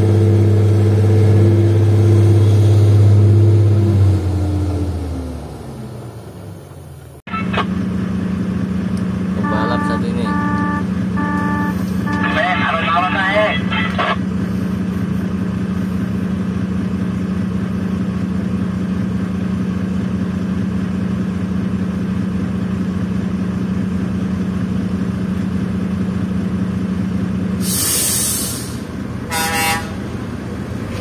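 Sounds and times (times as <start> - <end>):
vehicle engine idling: 5.6 - 31.0
vehicle horn toot: 9.4 - 12.8, 29.3 - 30.0
short hiss: 27.6 - 28.8.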